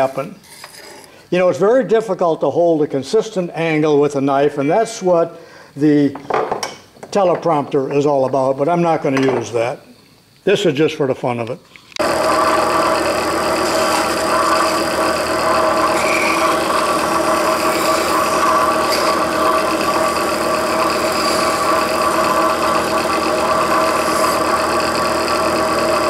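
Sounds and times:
grinder motor humming and whining: 12.0s - 26.0s.

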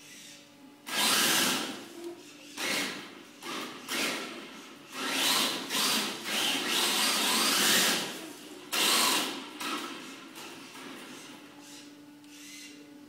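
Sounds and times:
electric toy car motor whining: 0.0s - 1.9s, 2.5s - 10.1s.

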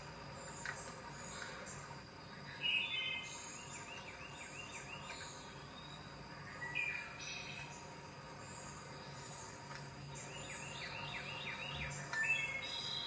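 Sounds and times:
wren singing: 0.3s - 13.0s.

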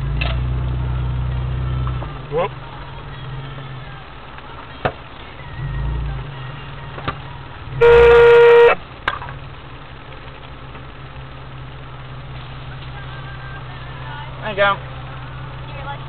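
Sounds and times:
vehicle engine running: 0.0s - 16.0s
car horn blast: 7.8s - 8.8s.

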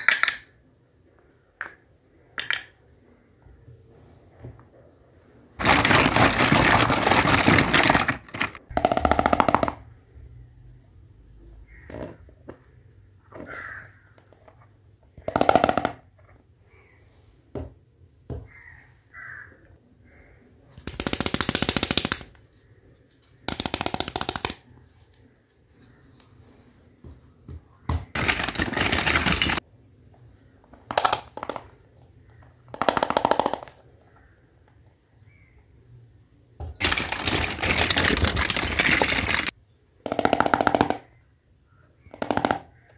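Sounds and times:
plastic toy pieces clicking: 0.0s - 0.6s, 5.6s - 9.9s, 20.8s - 22.4s, 23.5s - 24.6s, 28.1s - 29.6s, 30.8s - 31.8s, 32.7s - 33.8s, 36.8s - 39.5s.

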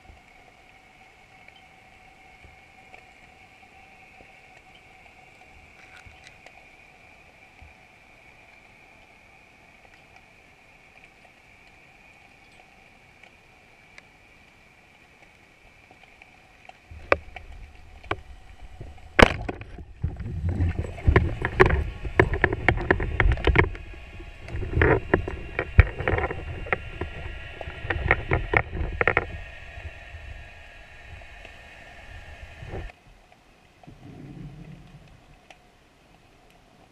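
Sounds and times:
faint underwater hum: 0.0s - 36.9s
low rumble of water movement: 0.0s - 36.9s
sharp knocks and clicks: 19.2s - 23.8s.

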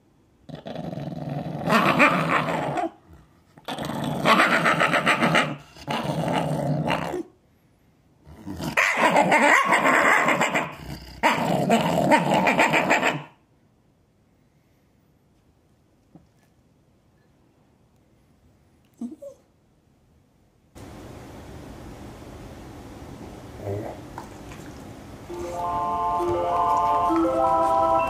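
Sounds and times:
dog growling: 0.5s - 7.3s, 8.2s - 13.3s, 23.6s - 24.0s.

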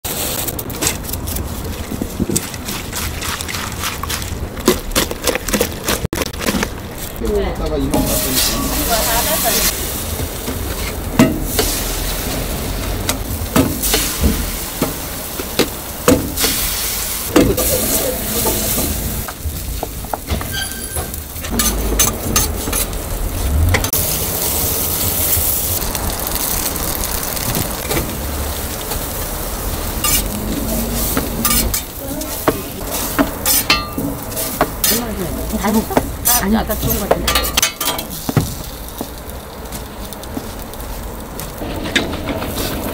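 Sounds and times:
food sizzling on griddle: 0.1s - 0.8s, 6.8s - 42.9s
metal spatula clacking and scraping: 20.4s - 23.0s, 30.0s - 38.2s.

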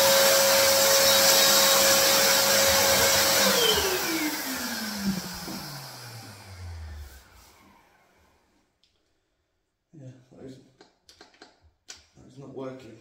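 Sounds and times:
paint sprayer turbine whine: 0.0s - 8.4s.

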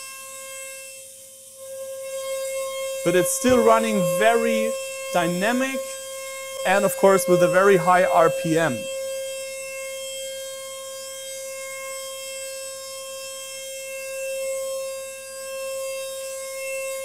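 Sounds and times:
milling spindle whine: 2.2s - 9.6s.

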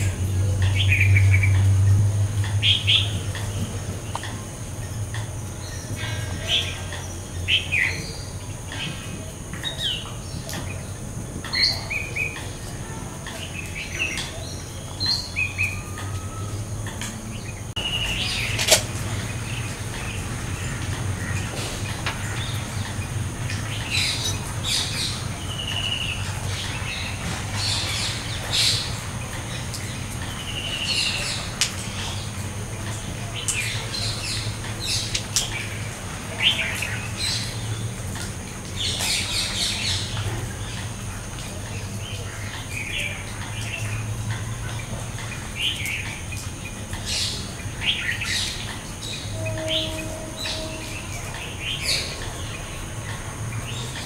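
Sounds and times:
birds chirping and whistling: 13.4s - 28.9s, 47.0s - 54.0s.

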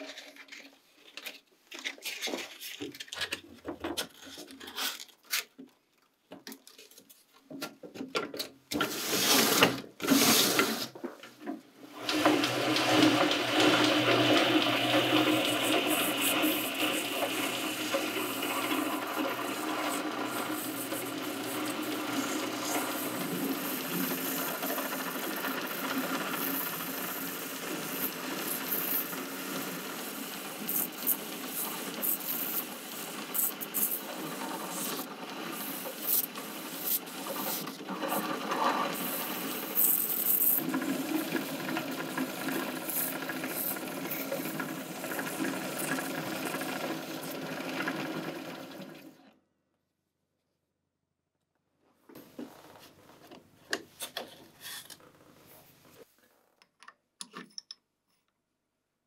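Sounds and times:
belt sander rasping on wood: 12.1s - 46.8s.

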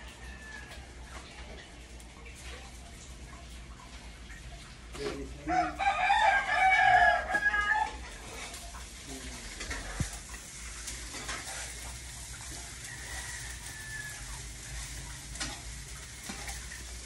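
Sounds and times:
rooster crowing: 0.0s - 1.1s, 5.5s - 8.1s, 12.5s - 15.1s.

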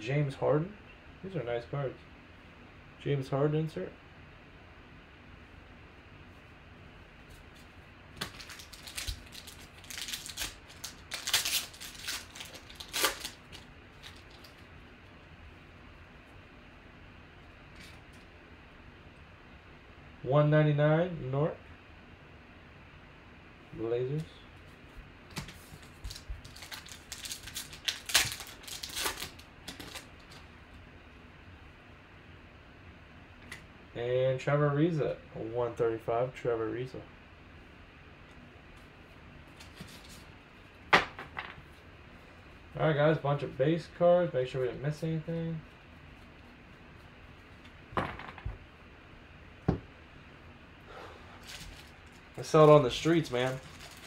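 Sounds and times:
foil wrapper tearing and crinkling: 8.2s - 14.6s, 25.8s - 30.4s, 51.4s - 54.0s.

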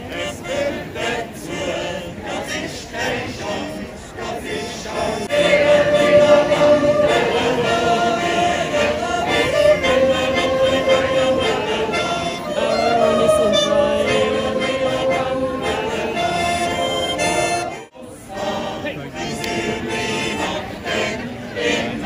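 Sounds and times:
button accordions: 4.5s - 21.8s
men yodeling in harmony: 4.6s - 17.8s.

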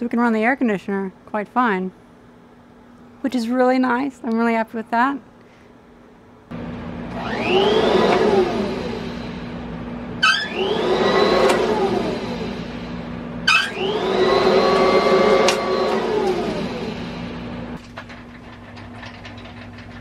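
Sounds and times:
steady hum: 5.7s - 18.8s
electric motor whine: 6.6s - 17.8s.

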